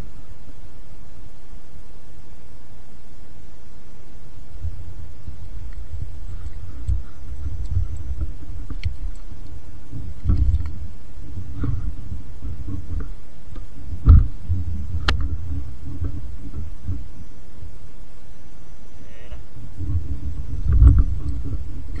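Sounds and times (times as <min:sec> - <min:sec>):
faint fish finder sound: 0:00.0 - 0:22.0
steady low rumble: 0:00.0 - 0:22.0
small clicks: 0:05.7 - 0:09.6, 0:10.2 - 0:10.8
dull thump: 0:14.0 - 0:14.6.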